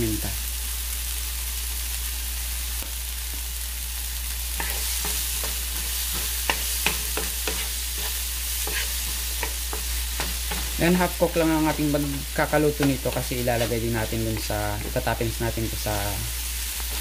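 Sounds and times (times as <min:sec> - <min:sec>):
vegetables sizzling in a pan: 0:00.0 - 0:17.0
utensil knocking against pan: 0:09.4 - 0:10.8.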